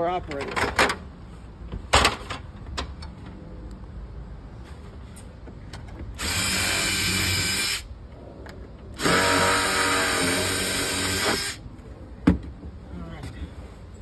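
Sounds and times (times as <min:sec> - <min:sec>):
power drill drilling: 0:06.2 - 0:07.9, 0:09.0 - 0:11.6.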